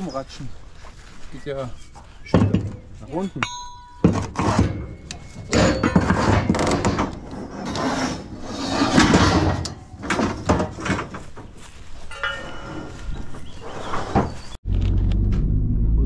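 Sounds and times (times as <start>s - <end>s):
scaffold parts knocking and scraping: 1.9s - 14.6s.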